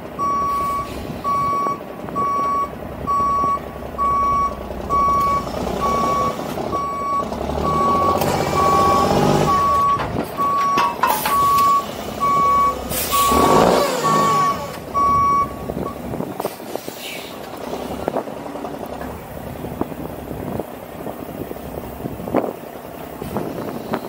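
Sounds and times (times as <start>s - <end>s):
diesel engine revving: 0.0s - 24.0s
reversing alarm beeping: 0.2s - 16.0s
air brake hiss: 0.5s - 1.3s, 12.9s - 13.3s, 16.4s - 17.4s.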